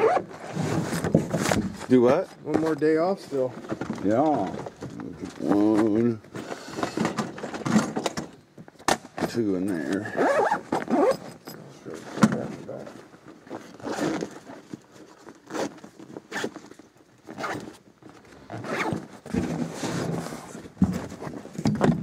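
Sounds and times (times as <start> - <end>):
zipper being pulled: 0.0 - 1.0, 9.8 - 11.4, 13.6 - 14.6, 15.4 - 16.6, 17.3 - 17.8, 18.5 - 20.6.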